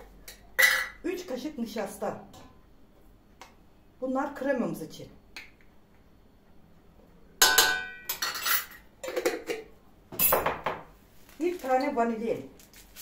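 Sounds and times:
cutlery and dishes clinking: 7.4 - 9.6.

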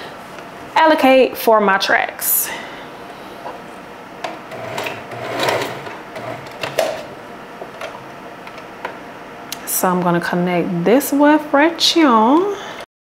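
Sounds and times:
sewing machine stitching: 4.5 - 7.1.

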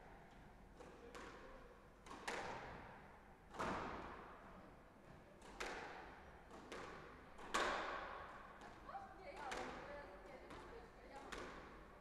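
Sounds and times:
squash racket hitting ball: 2.0 - 2.7, 5.4 - 8.7.

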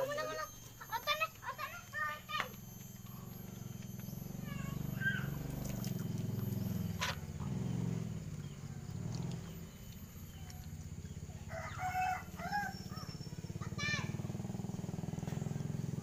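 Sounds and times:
low hum: 0.0 - 16.0
rooster crowing: 11.3 - 13.2.

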